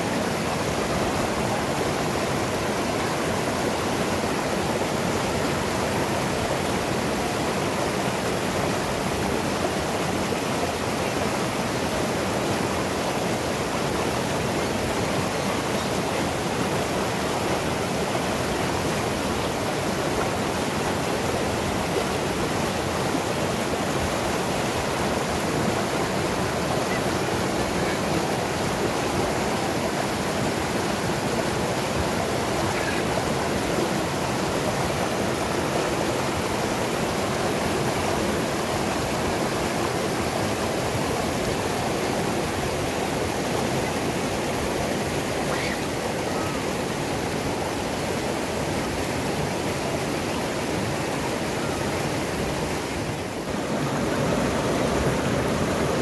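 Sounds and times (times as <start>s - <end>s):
white water rushing over rocks: 0.0s - 56.0s.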